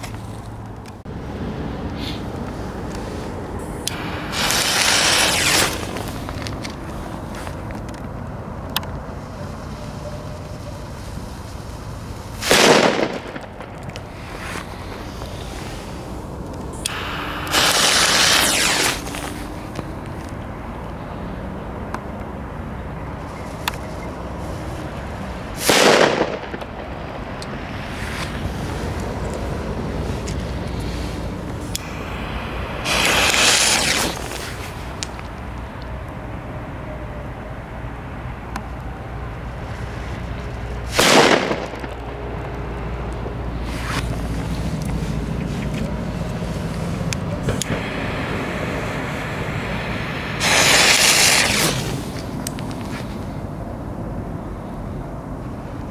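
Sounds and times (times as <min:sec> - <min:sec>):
low wind rumble: 0:00.0 - 0:55.9
match flaring with fizzing hiss: 0:03.9 - 0:06.8, 0:16.8 - 0:19.8, 0:30.2 - 0:35.4, 0:47.5 - 0:53.0
distant firecracker bang: 0:12.4 - 0:13.8, 0:25.6 - 0:27.0, 0:40.9 - 0:42.2.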